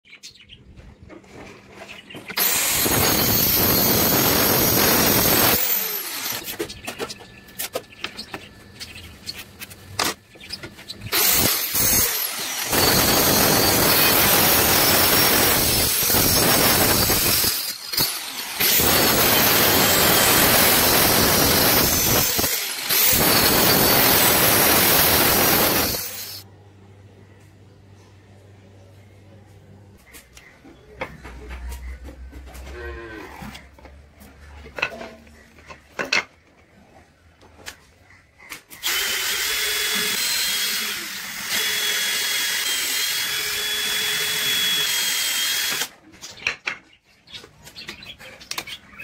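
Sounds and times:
circular saw cutting wood: 2.3 - 6.7, 10.0 - 26.4, 38.7 - 46.0.

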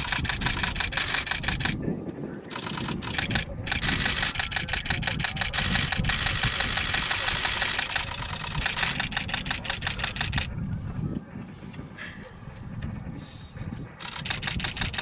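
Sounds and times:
camera shutters firing in bursts: 0.0 - 1.8, 2.5 - 10.5, 14.0 - 15.0.

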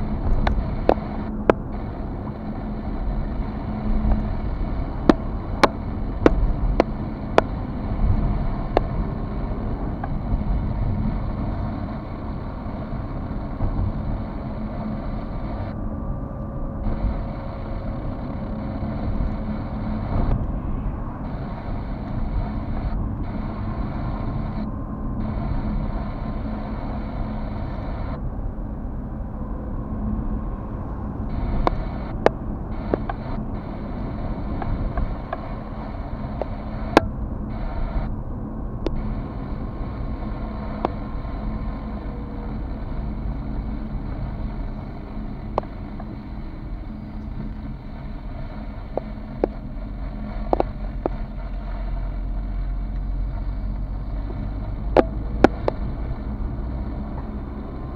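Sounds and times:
engine and tyres rumbling: 0.0 - 57.9
faint steady hum: 0.0 - 57.9
sharp clicks and ticks: 0.2 - 1.9, 3.7 - 9.1, 31.3 - 35.6, 36.2 - 38.1, 38.8 - 39.7, 40.6 - 41.7, 45.4 - 46.3, 48.8 - 51.6, 52.8 - 57.3.

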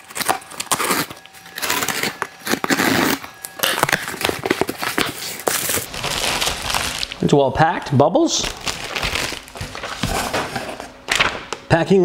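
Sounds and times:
bubble packing crinkling: 0.0 - 7.3, 8.2 - 11.5
cardboard flaps scraping: 8.6 - 11.3.

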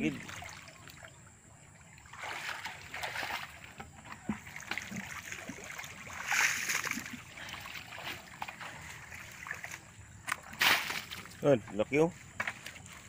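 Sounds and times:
hands splashing in muddy water: 2.0 - 11.4.

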